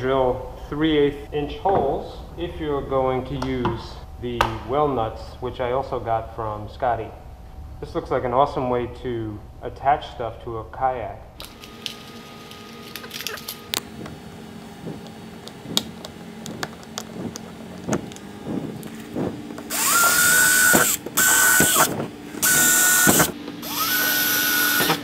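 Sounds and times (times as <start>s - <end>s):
drill whining through plastic: 16.4s - 25.0s.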